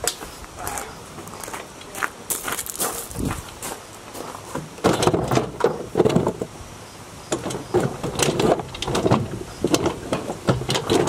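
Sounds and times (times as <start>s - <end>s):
items knocking and clattering: 4.5s - 6.5s, 7.4s - 11.0s.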